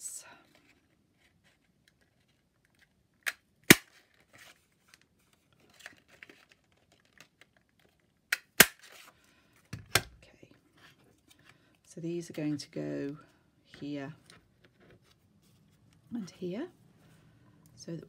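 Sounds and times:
paper punch snapping: 0:08.3 - 0:08.8.

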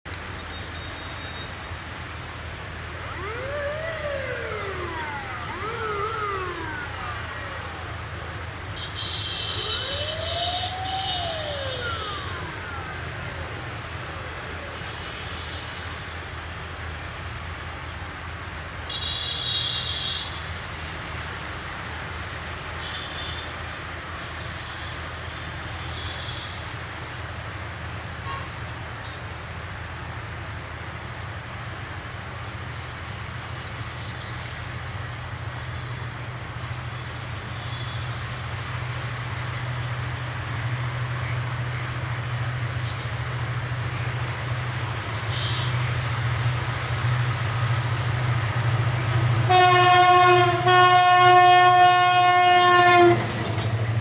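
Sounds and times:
siren-like wail: 0:02.9 - 0:14.8, 0:49.5 - 0:53.2.

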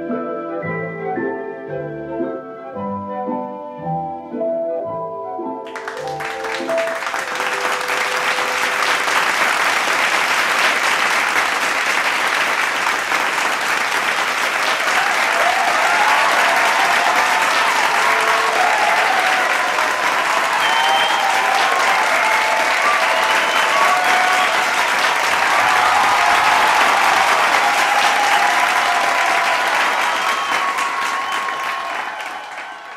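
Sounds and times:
soft music: 0:00.0 - 0:09.3
audience applauding: 0:05.7 - 0:32.9.

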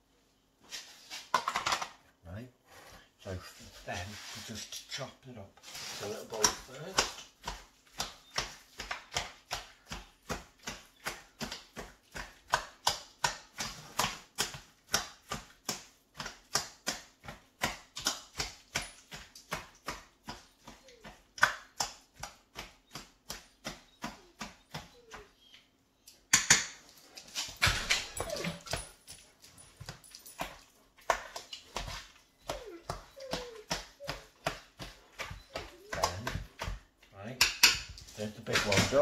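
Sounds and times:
knife chopping food: 0:06.3 - 0:25.3, 0:30.4 - 0:37.9
dogs whimpering: 0:20.6 - 0:21.3, 0:23.8 - 0:25.8, 0:27.6 - 0:29.2, 0:31.3 - 0:36.6.

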